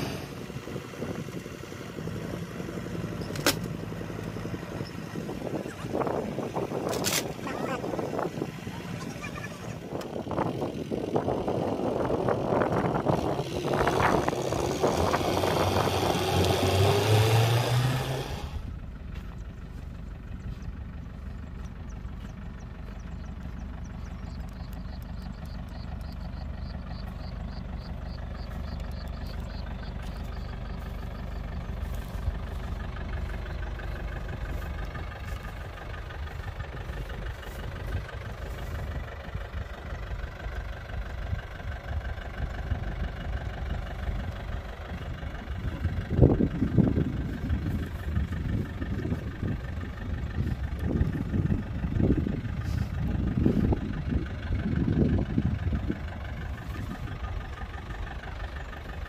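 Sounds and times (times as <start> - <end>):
tractor diesel engine revving: 0.0 - 59.0.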